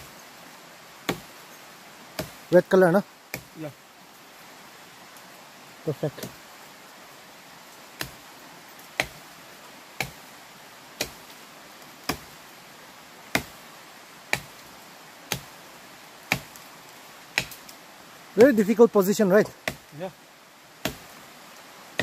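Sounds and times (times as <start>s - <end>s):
machete chopping woody vine: 1.1s - 1.3s, 2.1s - 2.5s, 3.3s - 3.6s, 8.0s - 8.2s, 8.9s - 9.2s, 10.0s - 10.3s, 11.0s - 11.3s, 12.0s - 12.4s, 13.3s - 13.6s, 14.3s - 14.6s, 15.3s - 15.6s, 16.3s - 16.6s, 17.3s - 17.7s, 18.4s - 18.8s, 19.4s - 19.9s, 20.8s - 21.2s.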